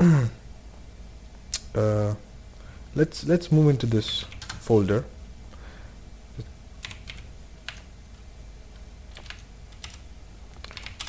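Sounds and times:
keyboard keystrokes: 4.2s - 4.6s, 6.8s - 7.9s, 9.1s - 10.0s, 10.6s - 11.0s.

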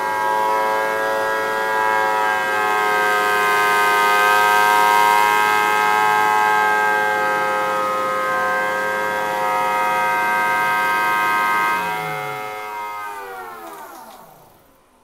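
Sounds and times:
siren two-tone chord: 0.1s - 14.9s.

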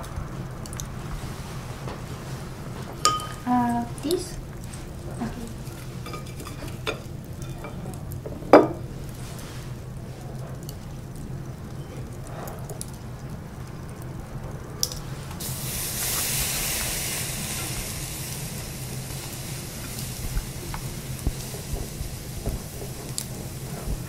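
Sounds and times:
steak sizzling on grill: 1.0s - 10.1s, 14.8s - 24.0s.

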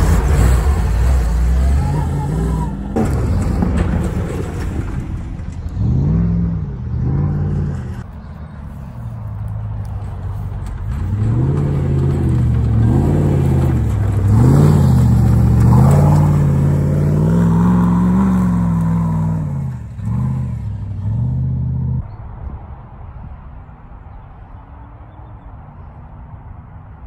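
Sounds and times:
racing car engine revving hard: 11.2s - 22.0s.

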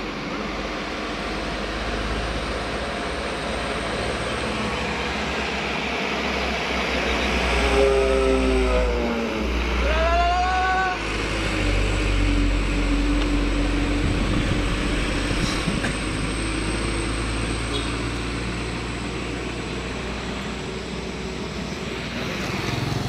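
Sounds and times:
truck engine passing: 0.0s - 23.0s
truck horn note: 7.5s - 9.1s, 17.7s - 18.0s.

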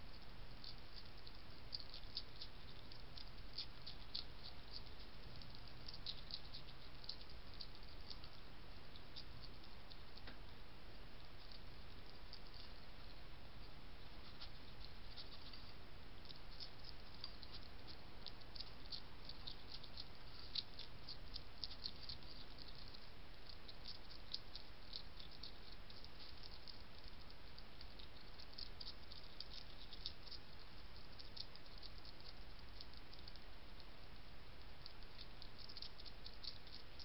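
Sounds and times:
faint microphone hiss: 0.0s - 37.0s
hedgehog chewing crunchy biscuits: 0.1s - 10.3s, 10.9s - 37.0s.

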